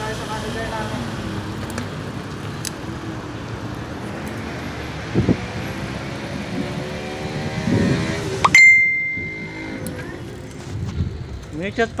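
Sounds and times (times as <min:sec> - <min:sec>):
motor vehicle engine: 0:00.0 - 0:11.9
road traffic: 0:00.0 - 0:12.0
wind noise: 0:04.8 - 0:12.0.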